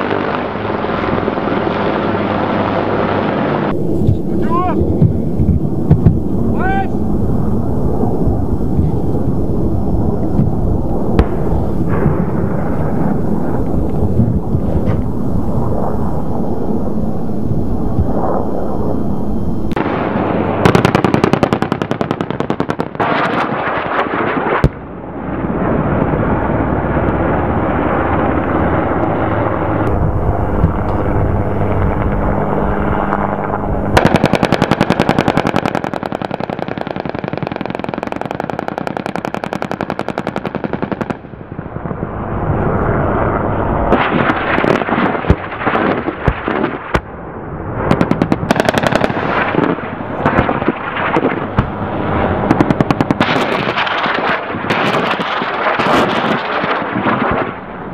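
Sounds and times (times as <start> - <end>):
low rumble: 0.0 - 20.7, 24.7 - 35.4
machine-gun fire bursts: 20.6 - 23.7, 34.0 - 41.2, 47.9 - 51.3.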